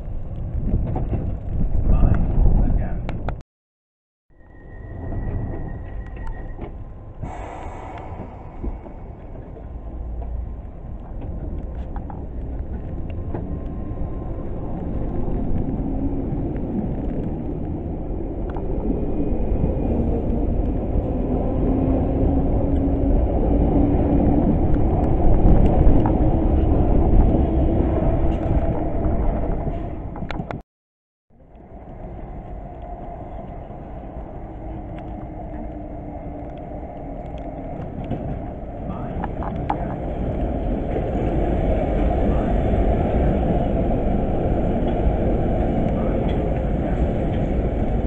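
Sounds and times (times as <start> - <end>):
train wheels rumbling on rail: 0.0 - 3.3, 4.8 - 30.6, 31.8 - 48.0
distant train approaching: 4.3 - 16.8, 31.6 - 48.0.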